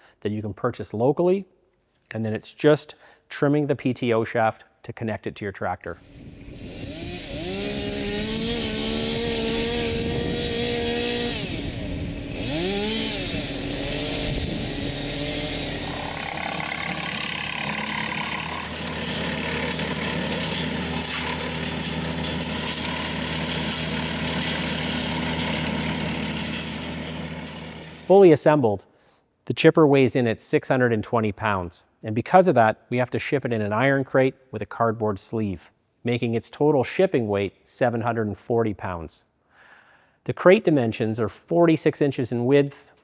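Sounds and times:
wood chipper chipping branches: 6.1s - 28.2s.

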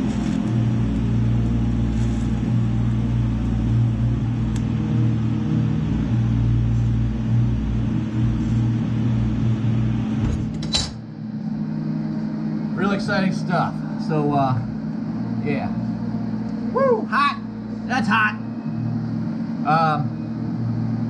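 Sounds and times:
welder humming: 0.0s - 21.0s.

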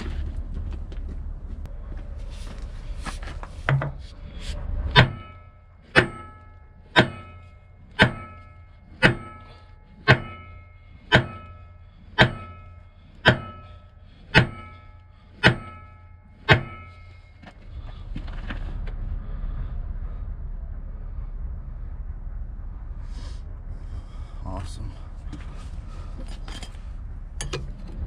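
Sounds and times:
hammer striking steel: 4.9s - 17.6s.

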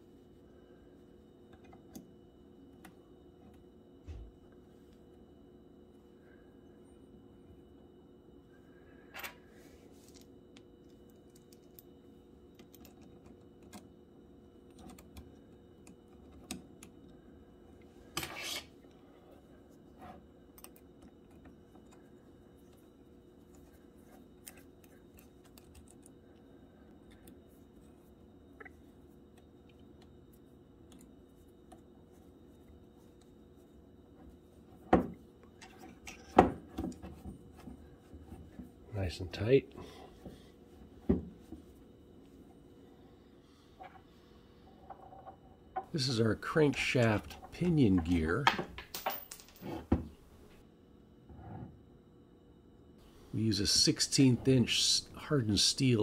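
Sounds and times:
faint hum: 0.0s - 56.0s
metal parts clicking and tapping: 46.8s - 49.8s.

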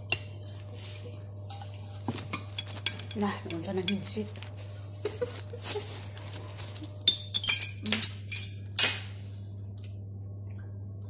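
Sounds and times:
cutlery and metal pans clattering: 2.0s - 4.5s, 6.5s - 9.0s.

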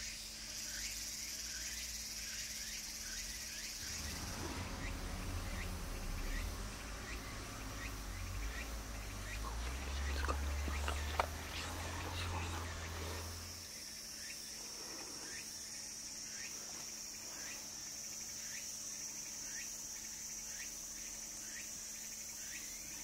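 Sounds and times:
insects buzzing: 0.0s - 23.0s
low hum: 3.6s - 13.7s
short faint calls: 3.8s - 13.5s.

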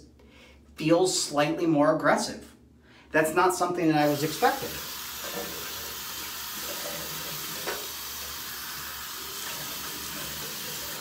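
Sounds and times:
tap water pouring into sink: 4.1s - 11.0s.

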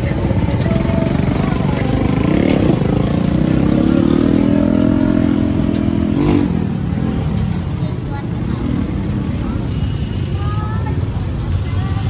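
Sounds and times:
vehicle engine running: 0.0s - 9.6s.

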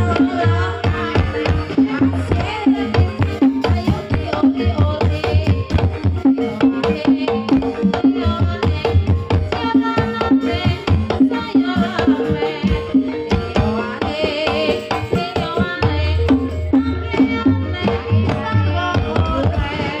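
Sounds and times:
hand drum fast rhythm: 0.0s - 20.0s.

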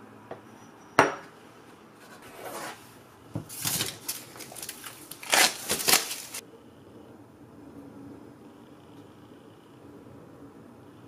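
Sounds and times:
paper rustling and scraping: 2.0s - 6.4s.

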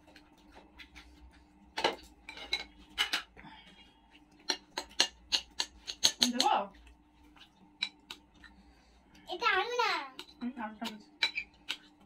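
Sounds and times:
spoons clinking on plates: 1.8s - 3.3s, 4.4s - 6.5s, 10.2s - 11.9s.

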